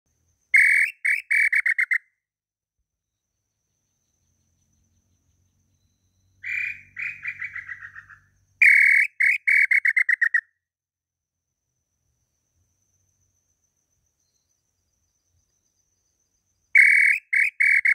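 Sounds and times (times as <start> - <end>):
whistled bird call notes: 0.6 - 2.0, 5.7 - 10.5, 16.7 - 17.9.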